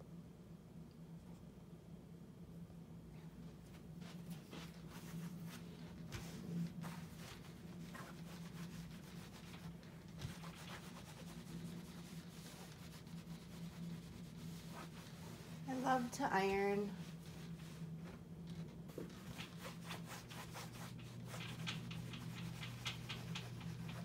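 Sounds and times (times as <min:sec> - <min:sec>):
steady low hum: 0:00.0 - 0:24.0
iron rubbing over fabric: 0:04.0 - 0:18.3, 0:18.9 - 0:24.0.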